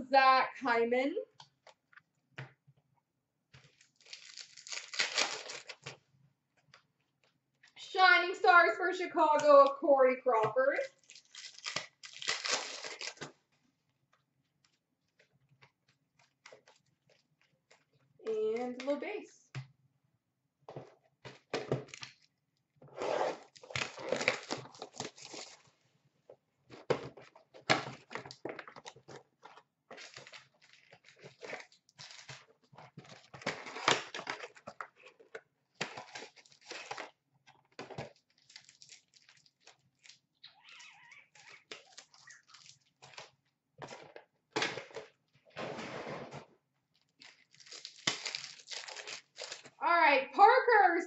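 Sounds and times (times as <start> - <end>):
card packs tearing open: 3.6 - 6.0, 10.8 - 13.3, 23.3 - 25.6, 27.7 - 37.2, 37.8 - 44.0, 47.2 - 49.8
wrappers crinkling: 3.6 - 6.0, 10.8 - 13.3, 23.4 - 25.6, 28.2 - 37.2, 37.9 - 44.1, 46.9 - 49.8.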